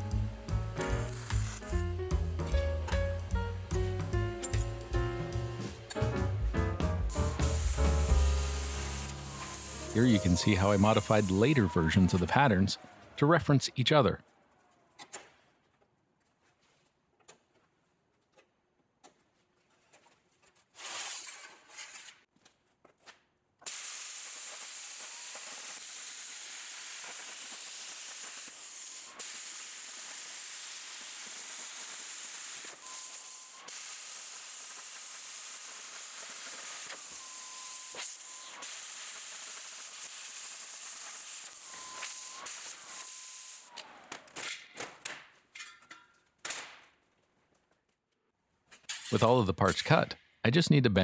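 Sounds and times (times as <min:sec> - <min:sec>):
plasma cutter hissing: 0:01.0 - 0:01.7, 0:07.1 - 0:11.8, 0:23.7 - 0:43.7.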